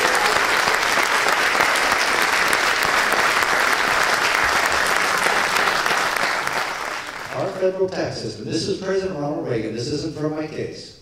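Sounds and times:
large audience applauding: 0.0s - 7.6s.

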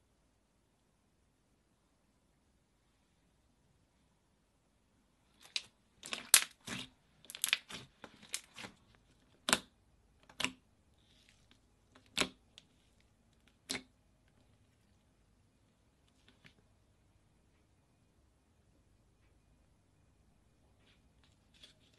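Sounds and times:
slime popping and crackling: 5.4s - 10.6s.

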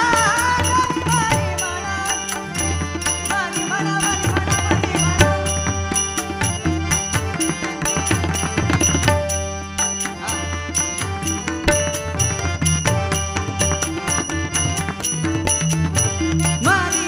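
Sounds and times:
sustained melodic notes: 4.9s - 17.0s.

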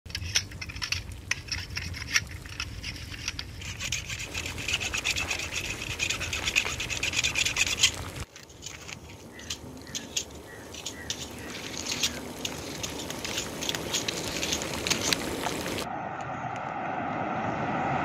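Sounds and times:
blade sawing through plant stems: 2.8s - 15.8s.

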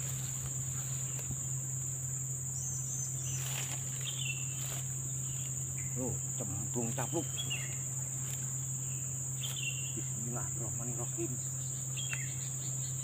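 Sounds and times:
faint rustles: 0.0s - 2.0s, 3.2s - 6.0s, 6.7s - 8.8s
insects trilling: 0.0s - 13.0s
low steady hum: 0.0s - 13.0s.

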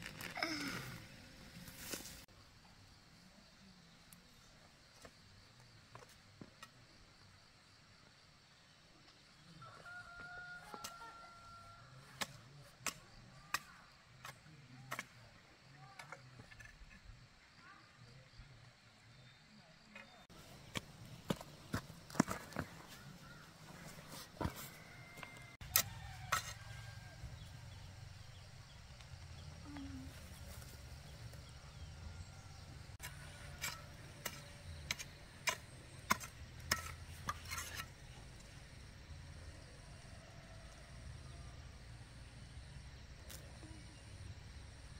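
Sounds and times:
irregular scrapes and knocks: 32.3s - 38.2s.

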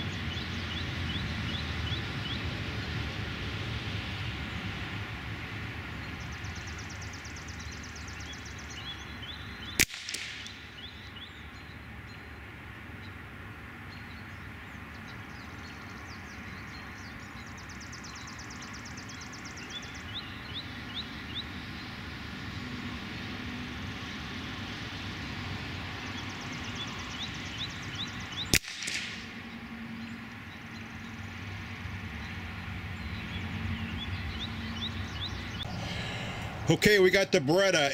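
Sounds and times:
small birds chirping: 5.8s - 13.2s, 13.8s - 23.3s, 25.7s - 37.9s
rifle shot: 9.8s - 10.6s, 28.5s - 29.4s.

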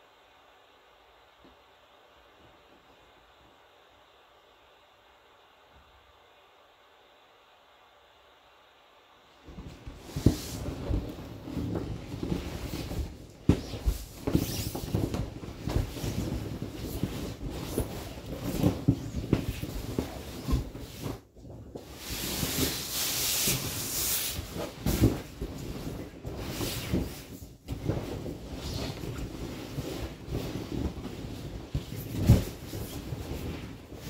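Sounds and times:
hissing rub on vinyl: 9.6s - 21.2s, 21.9s - 27.5s
vinyl pool toy rubbing and bumping: 10.0s - 21.2s.

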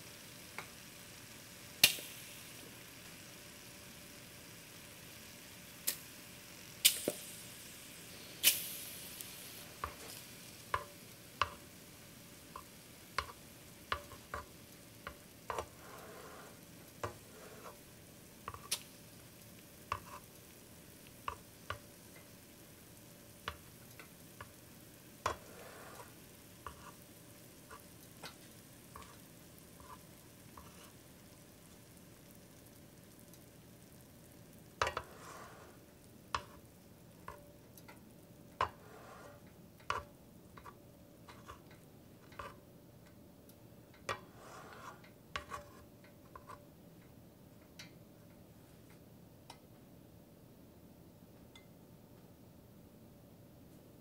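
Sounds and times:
food sizzling on grill plate: 0.0s - 42.5s, 44.2s - 45.8s
fat popping and crackling: 1.8s - 2.2s, 6.8s - 7.4s, 8.4s - 11.8s.

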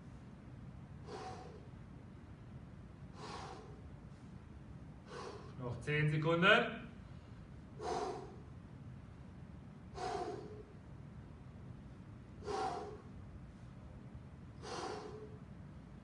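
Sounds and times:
man breathing out hard: 1.0s - 1.7s, 3.1s - 4.3s, 5.0s - 5.6s, 7.8s - 8.5s, 9.9s - 10.8s, 12.4s - 13.2s, 14.6s - 15.5s.

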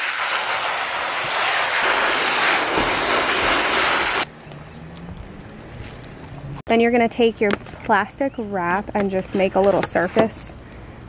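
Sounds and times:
hose spraying water: 0.0s - 4.3s.

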